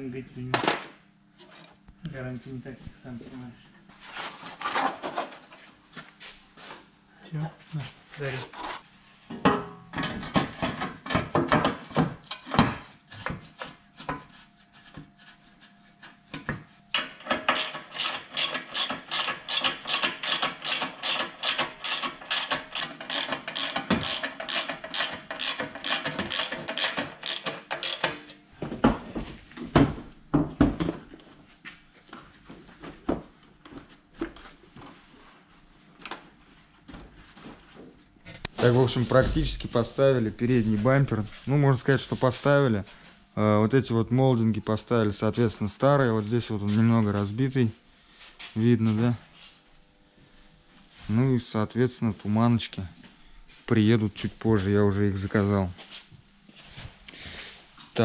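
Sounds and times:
hand tool rasping: 17.0s - 28.1s.

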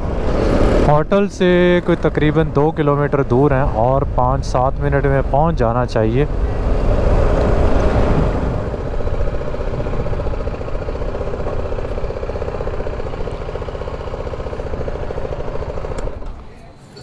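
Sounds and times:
motorcycle engine idling: 8.6s - 17.0s.

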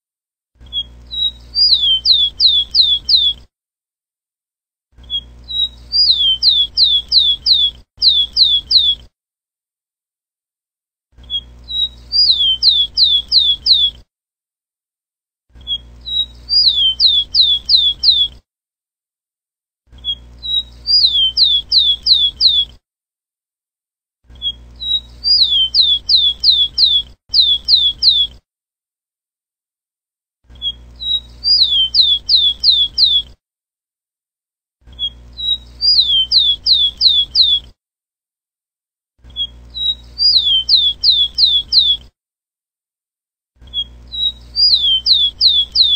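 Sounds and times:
sparrow singing: 0.7s - 3.4s, 5.0s - 9.0s, 11.2s - 14.0s, 15.6s - 18.3s, 20.0s - 22.7s, 24.4s - 28.4s, 30.6s - 33.3s, 35.0s - 37.7s, 39.3s - 42.0s, 43.7s - 45.9s.

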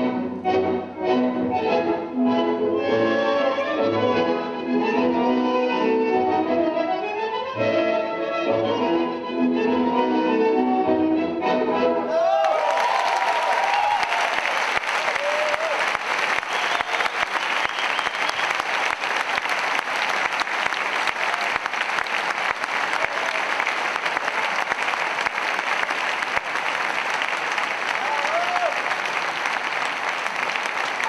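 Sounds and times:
audience cheering: 12.1s - 31.0s
audience clapping: 12.3s - 31.0s.

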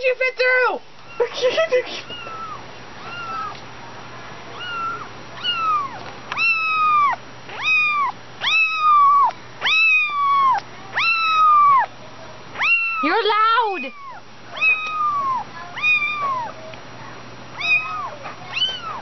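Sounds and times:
kitten meowing: 2.0s - 3.6s, 4.5s - 11.9s, 12.6s - 16.5s, 17.6s - 19.0s.

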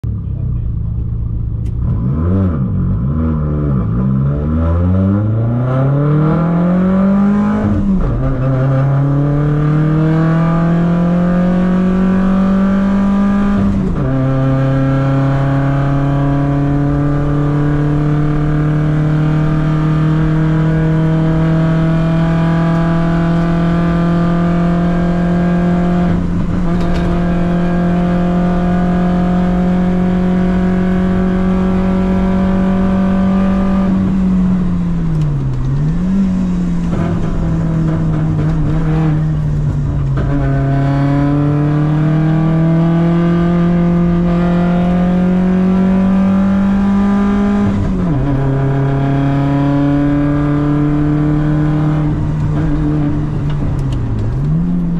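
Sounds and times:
car engine accelerating hard: 0.0s - 54.9s.

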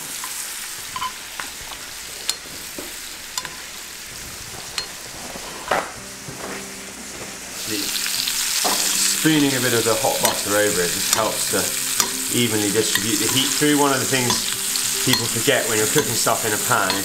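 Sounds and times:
meat sizzling in butter: 0.0s - 5.6s, 7.6s - 17.0s
spoon clicking against pan: 10.2s - 12.3s, 12.9s - 17.0s.

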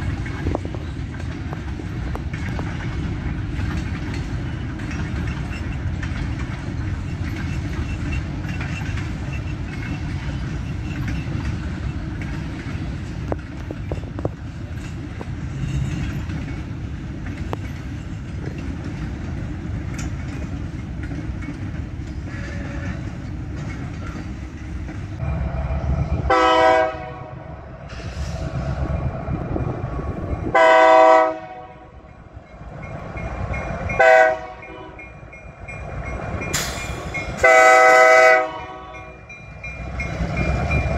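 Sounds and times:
freight cars rumbling and clattering: 0.0s - 40.9s
locomotive horn blasts: 22.3s - 23.1s, 26.2s - 27.5s, 30.5s - 32.0s, 34.0s - 35.2s, 37.4s - 39.3s.

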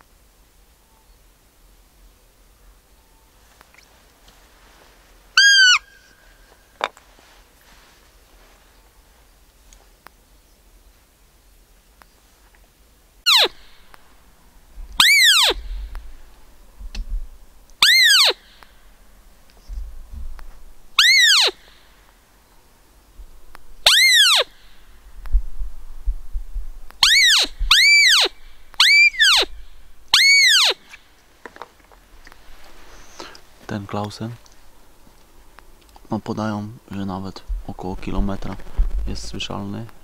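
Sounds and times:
deer call squeaks: 5.4s - 6.9s, 13.2s - 13.8s, 15.0s - 15.8s, 17.8s - 18.7s, 21.0s - 21.8s, 23.8s - 24.6s, 27.0s - 31.0s.

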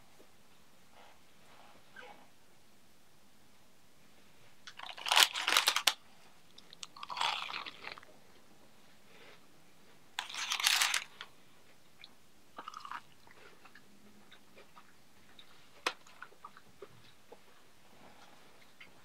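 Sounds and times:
fried fish crunching when bitten: 6.9s - 8.0s.

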